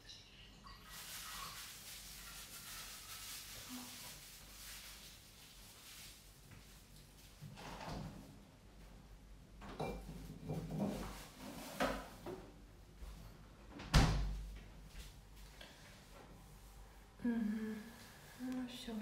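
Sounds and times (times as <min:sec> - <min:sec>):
handling rustles and knocks: 0:09.6 - 0:13.4
loud thump of door shutting: 0:13.8 - 0:14.4.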